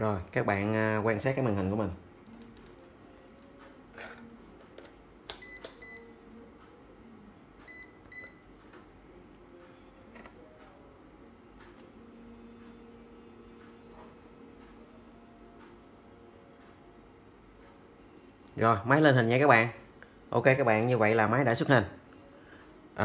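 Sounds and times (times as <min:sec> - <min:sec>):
faint high whine: 0:00.0 - 0:23.0
sharp click: 0:04.8 - 0:05.8.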